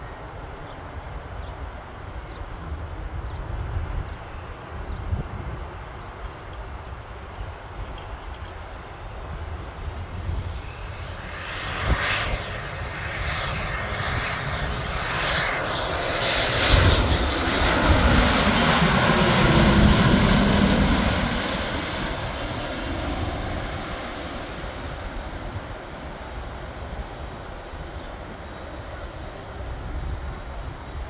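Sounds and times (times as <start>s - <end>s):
jet engine roar: 6.5s - 31.0s.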